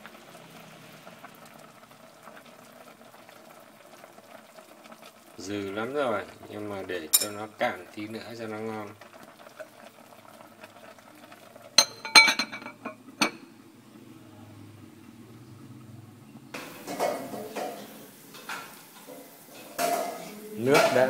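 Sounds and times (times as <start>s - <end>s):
glass lid clinking on pot: 7.1s - 7.4s, 11.8s - 13.4s.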